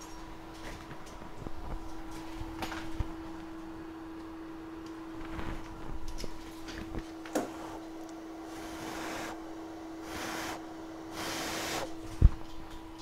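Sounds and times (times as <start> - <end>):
low equipment hum: 0.0 - 13.0
short airy hisses: 10.0 - 11.9.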